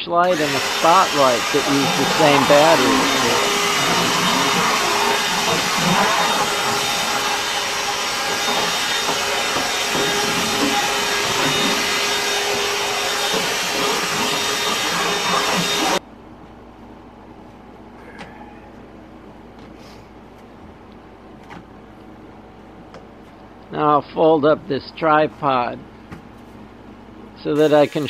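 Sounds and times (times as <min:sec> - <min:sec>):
cordless vacuum running: 0:00.2 - 0:16.0.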